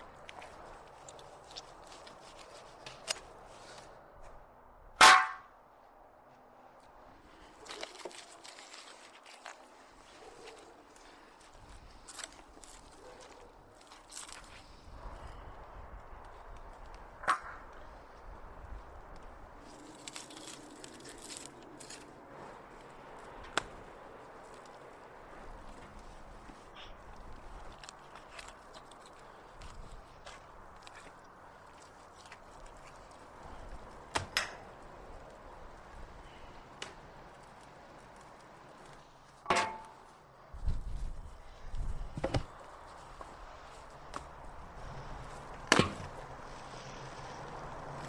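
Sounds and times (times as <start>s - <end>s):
bone clanging into metal cauldron: 39.5s - 40.0s.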